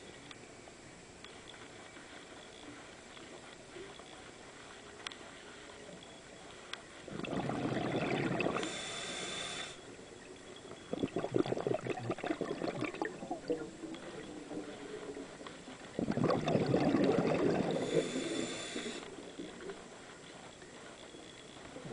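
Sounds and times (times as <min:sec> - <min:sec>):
regulator hissing inhale: 0:08.2 - 0:09.9, 0:17.4 - 0:19.1
regulator exhaust bubbling: 0:16.0 - 0:17.9.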